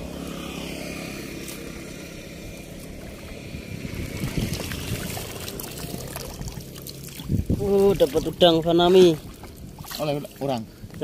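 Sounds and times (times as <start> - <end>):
vehicle engine humming: 0.0 - 11.0
splashing: 2.7 - 10.6.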